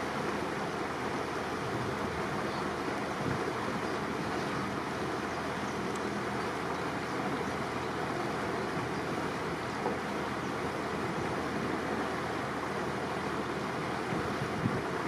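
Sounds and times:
water washing along a boat hull: 0.0 - 15.0
wind on the microphone: 1.6 - 6.2, 13.8 - 15.0.

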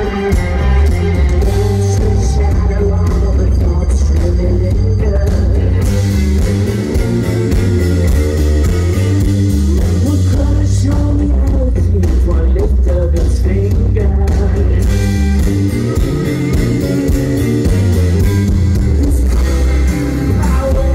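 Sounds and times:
man singing into a microphone: 0.0 - 6.5, 9.5 - 15.2, 18.8 - 20.9
live rock band playing: 0.0 - 20.9.

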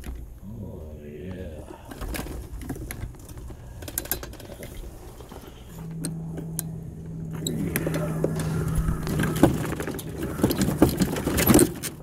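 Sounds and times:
steady low hum: 0.0 - 12.0
light clicks and rattles: 1.8 - 12.0
low rumble: 4.8 - 11.2.

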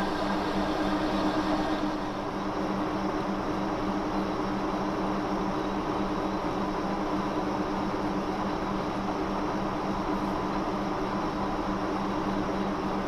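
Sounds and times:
lathe running: 0.0 - 2.5.

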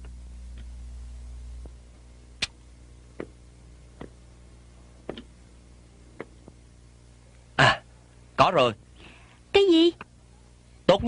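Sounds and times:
low hum: 0.0 - 8.3
hard-soled footsteps: 3.1 - 3.4, 4.0 - 4.2, 5.0 - 5.3, 6.2 - 6.6.

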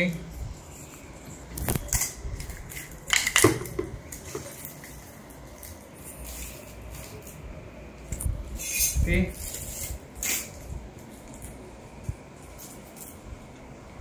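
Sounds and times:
plastic film crinkling: 8.0 - 11.7.

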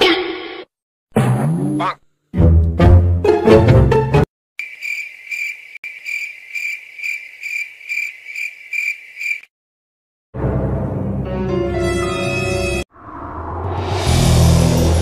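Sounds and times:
cricket chirping: 4.6 - 9.5.

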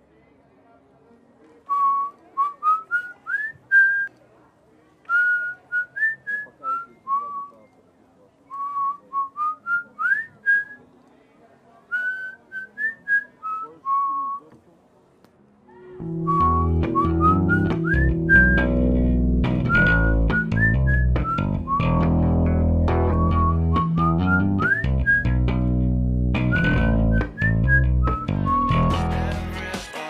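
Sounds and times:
person whistling a tune: 16.0 - 18.9, 19.6 - 22.1, 23.0 - 25.4, 26.5 - 29.1.

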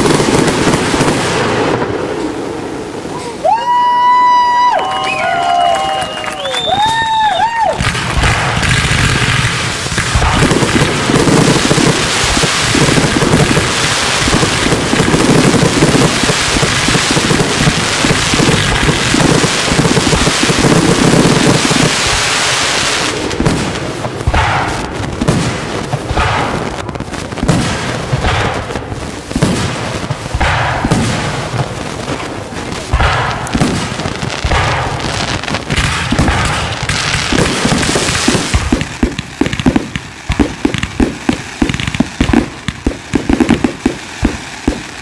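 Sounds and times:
fireworks fountain crackling hiss: 0.0 - 45.0
firework shell bangs: 24.2 - 25.0, 32.9 - 35.0.

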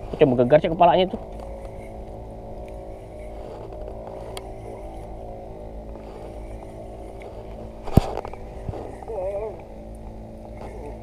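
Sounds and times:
boat engine idling: 0.0 - 11.0.

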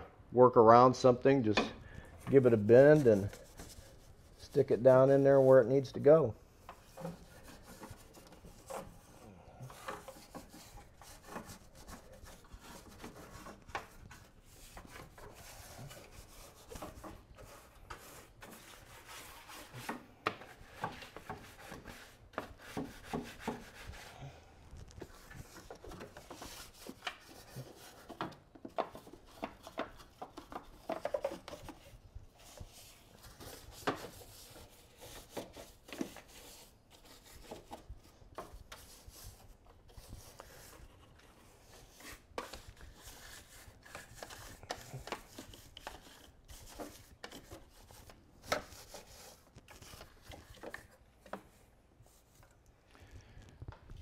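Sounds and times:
brush tapping parts: 1.2 - 23.7, 25.0 - 40.8
brush scratching plastic parts: 2.0 - 52.6.

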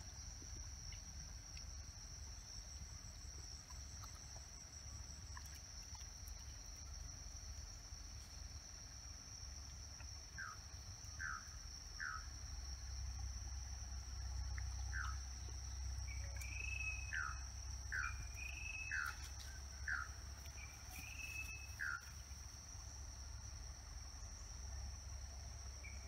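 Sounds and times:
insects droning: 0.0 - 26.0.

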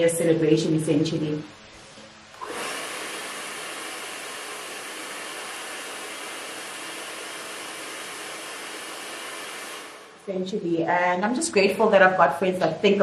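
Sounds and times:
hair dryer running: 2.3 - 10.4.

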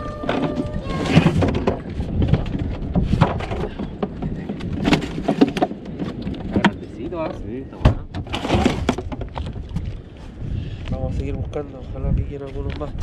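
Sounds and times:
wind rumble on microphone: 0.0 - 13.0
knocks and clatter of plastic cooler: 0.3 - 9.7.

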